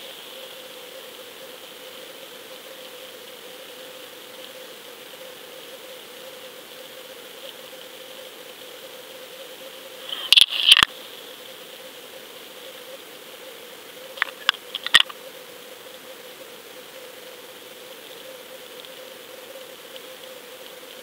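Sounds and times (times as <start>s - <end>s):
sharp underwater clicks and knocks: 10.2s - 10.9s, 14.2s - 15.2s.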